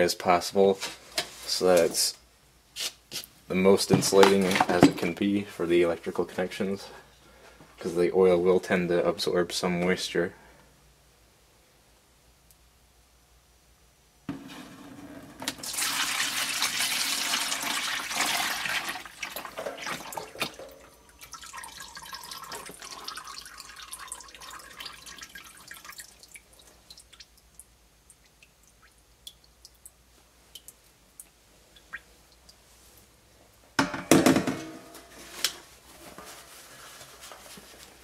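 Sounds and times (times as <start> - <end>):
oil pouring into plastic bucket: 15.5 - 26.3.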